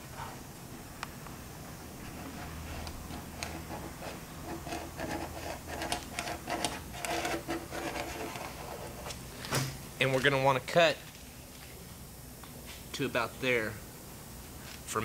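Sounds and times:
low steady hum: 0.0s - 15.0s
pin scraping fiberglass panel: 2.1s - 9.2s.

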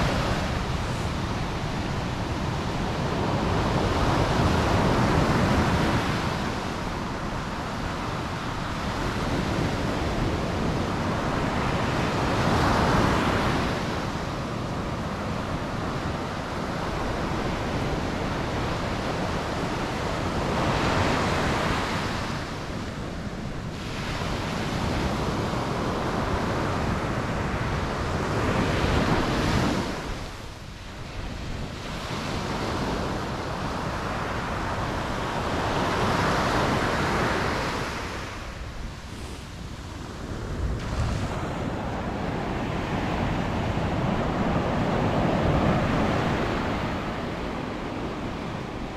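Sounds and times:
surf breaking on sandy beach: 31.3s - 48.9s.

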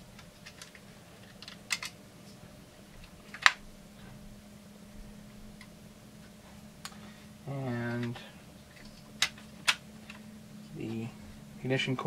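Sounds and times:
plastic and metal parts clicking: 0.2s - 2.0s.

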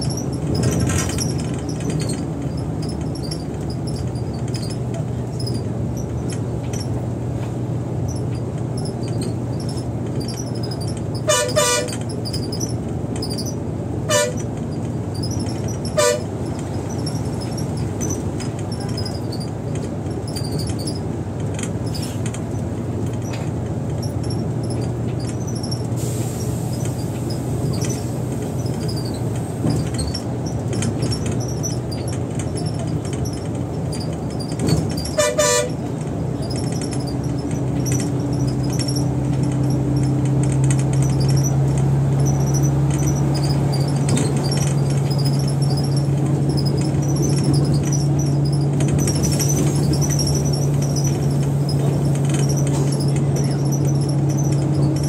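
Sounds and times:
bus engine and road drone: 0.0s - 55.0s
vehicle horn toot: 11.3s - 12.0s, 14.1s - 14.4s, 16.0s - 16.3s, 35.2s - 35.8s.

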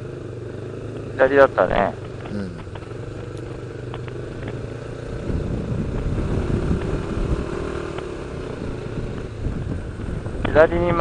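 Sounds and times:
motorcycle engine running: 0.0s - 11.0s
wind rumble on microphone: 5.1s - 7.6s, 8.5s - 11.0s.

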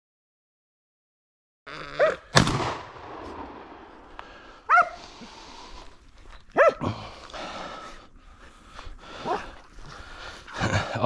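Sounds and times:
dogs barking: 2.0s - 2.3s, 4.7s - 5.1s, 6.5s - 6.8s, 9.2s - 9.6s
loud gunshot: 2.3s - 3.9s.

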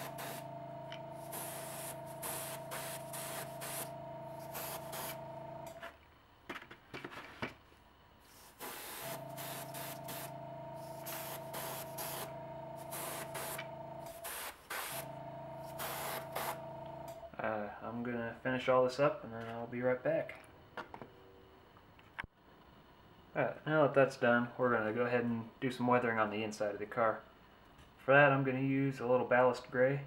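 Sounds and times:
airbrush spraying paint: 0.0s - 5.3s, 8.2s - 16.6s
compressor humming: 0.0s - 5.8s, 8.2s - 17.6s.

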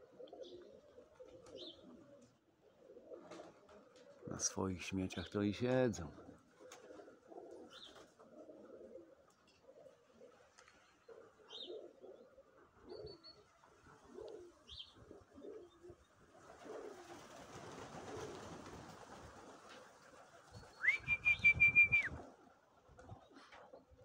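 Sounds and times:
pigeons cooing: 0.0s - 4.5s, 6.1s - 24.0s
small birds chirping: 0.3s - 2.3s, 6.6s - 8.2s, 10.6s - 16.2s, 20.4s - 21.7s
wings flapping: 3.1s - 4.2s, 6.5s - 8.2s, 16.3s - 23.9s.

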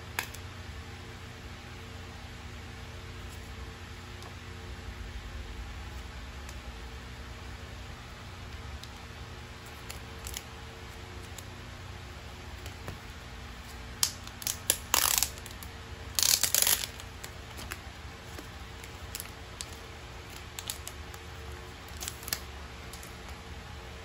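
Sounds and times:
low steady hum: 0.0s - 24.0s
plastic wrap crinkling and tearing: 9.7s - 10.5s, 13.6s - 23.3s.

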